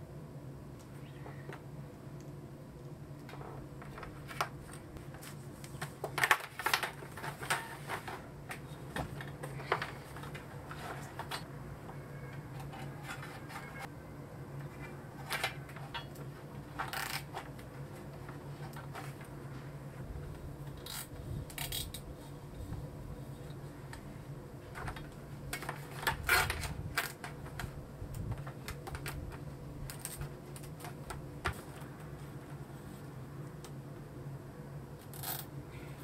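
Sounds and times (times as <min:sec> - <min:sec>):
plastic parts clicking and rattling: 0:03.2 - 0:11.5, 0:12.4 - 0:13.9, 0:14.6 - 0:19.3, 0:24.7 - 0:31.9.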